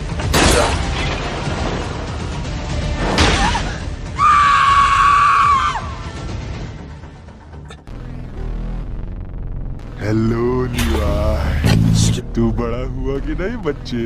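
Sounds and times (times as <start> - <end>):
soundtrack music: 0.0 - 14.0
loud held scream: 4.2 - 6.1.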